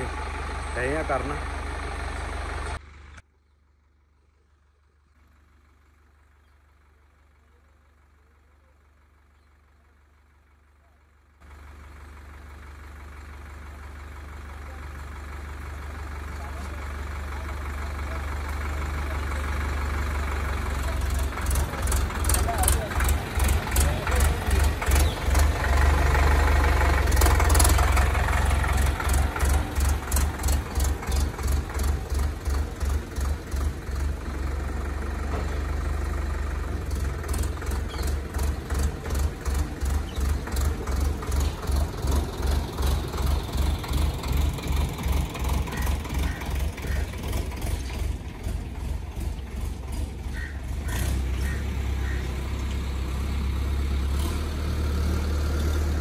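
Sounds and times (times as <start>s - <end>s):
diesel tractor engine running: 0.0s - 56.0s.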